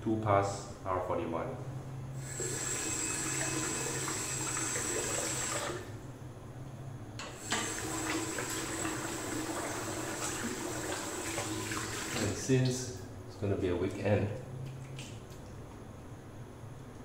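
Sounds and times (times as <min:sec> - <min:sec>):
tap water running into sink: 0:02.3 - 0:05.8, 0:07.4 - 0:12.4.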